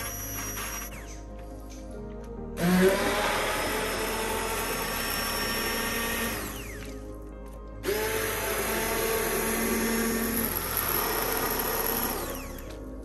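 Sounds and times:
immersion blender whining: 0.0s - 1.1s, 2.6s - 6.9s, 7.8s - 12.8s.

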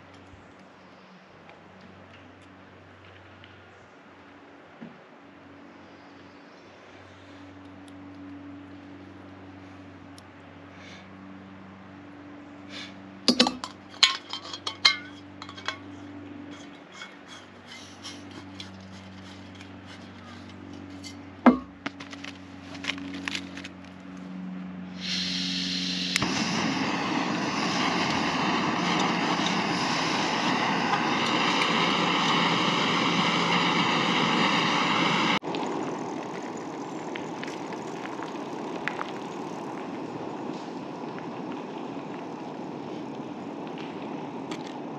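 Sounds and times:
metal clinks of cookware: 13.3s - 15.9s
gas stove hissing: 25.0s - 35.4s.

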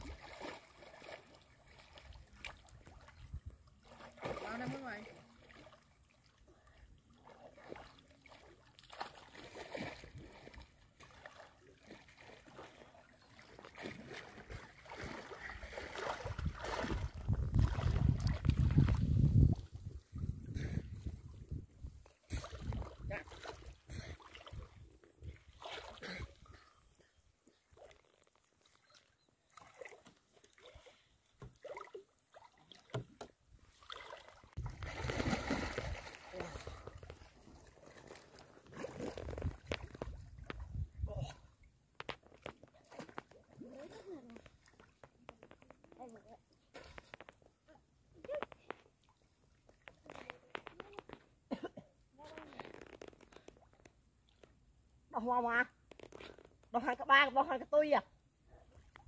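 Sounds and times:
muddy water sloshing and splashing: 0.0s - 51.5s
churning water rush: 3.8s - 6.0s.

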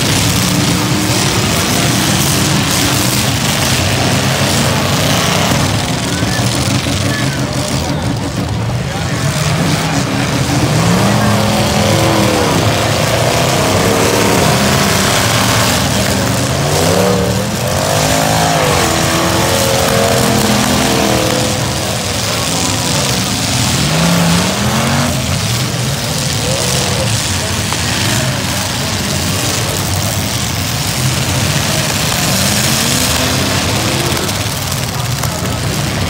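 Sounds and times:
car engines revving: 0.0s - 36.0s
wheels spinning through mud: 0.0s - 36.0s.

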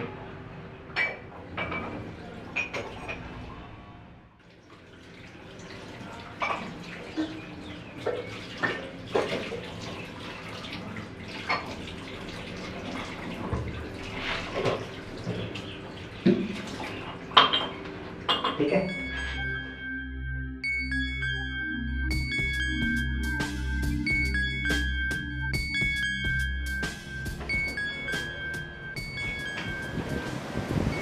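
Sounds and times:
plates and glasses clinking: 0.9s - 3.3s, 16.3s - 19.8s
water running from tap: 4.5s - 17.3s.

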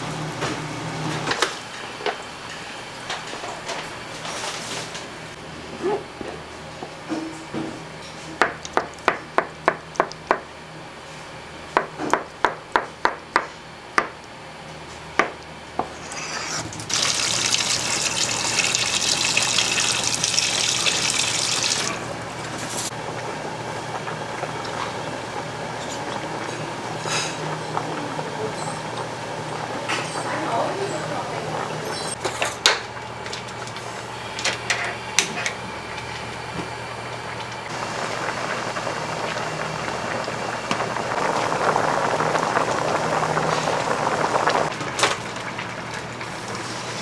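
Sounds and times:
water running from tap: 16.7s - 22.5s.

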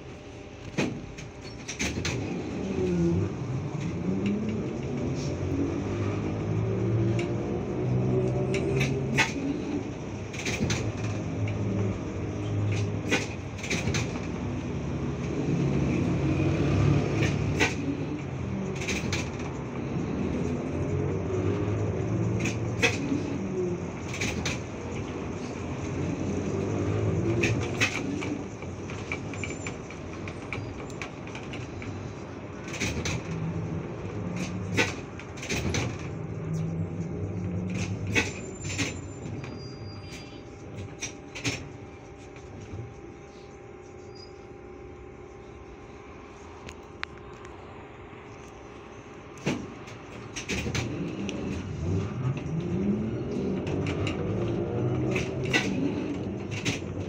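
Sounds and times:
trolleybus hum and rumble: 0.0s - 57.0s
sharp knocks and rattles: 0.7s - 2.6s, 10.2s - 16.2s, 24.0s - 39.6s, 49.3s - 57.0s.

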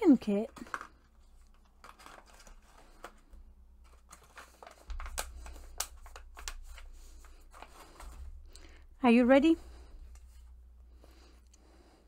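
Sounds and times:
plastic pouch rustling: 0.0s - 8.9s.

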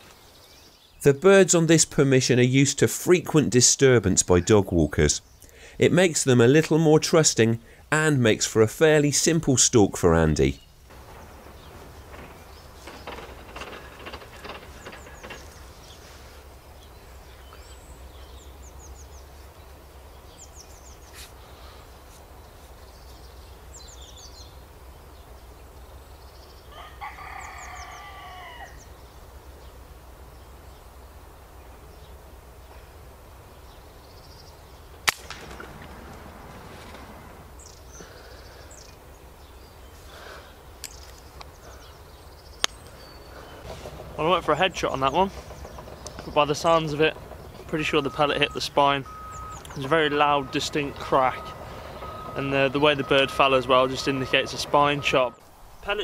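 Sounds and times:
songbird chirps: 0.0s - 56.0s
bird call: 33.7s - 55.4s
air rifle shot: 35.0s - 36.0s.

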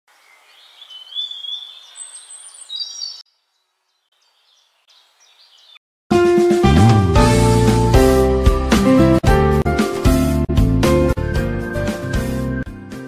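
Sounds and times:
birds chirping and whistling: 0.2s - 5.8s
loud instrumental music: 6.1s - 13.0s.

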